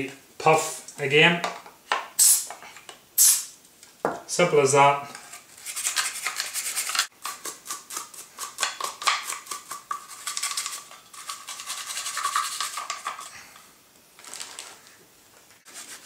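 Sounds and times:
toothbrush scrubbing metal: 5.3s - 13.6s.

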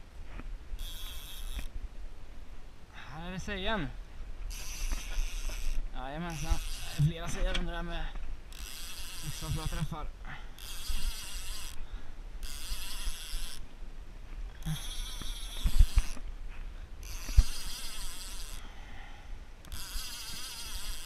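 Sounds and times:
fishing reel whirring: 0.8s - 1.7s, 4.5s - 7.4s, 8.5s - 13.6s, 14.6s - 16.2s, 17.0s - 18.7s, 19.6s - 21.0s.

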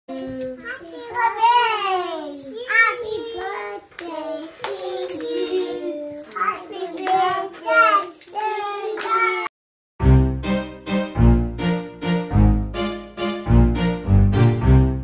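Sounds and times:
children singing: 1.0s - 9.5s.

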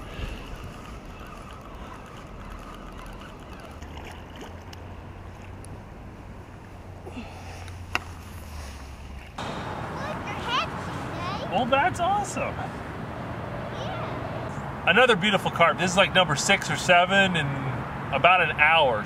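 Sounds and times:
fish splashing in shallow water: 0.0s - 6.0s.

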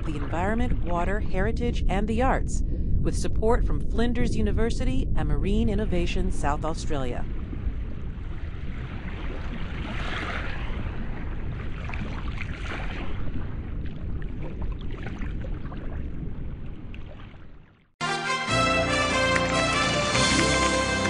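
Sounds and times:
sea water rushing and splashing: 7.3s - 17.8s
music: 18.0s - 21.0s.

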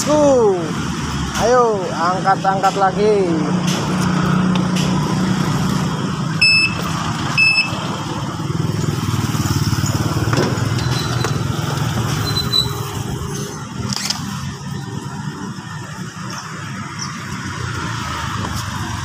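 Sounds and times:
short high electronic beeps: 6.4s - 7.8s.

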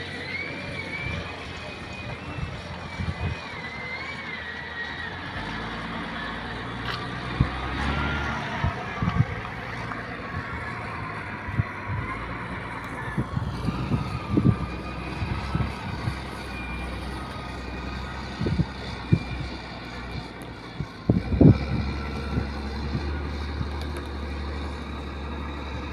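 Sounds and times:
distant motor drone: 0.0s - 25.9s
wind rumbling on microphone: 0.6s - 3.7s, 6.6s - 24.1s.

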